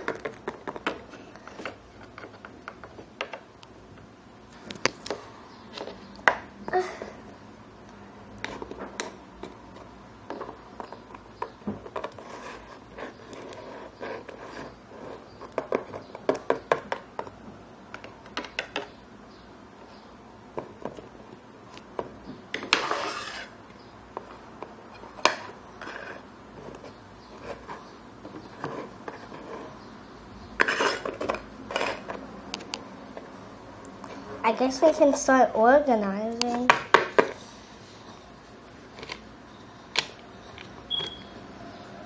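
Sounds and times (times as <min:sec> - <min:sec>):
scraping rustle: 0:22.6 - 0:23.6.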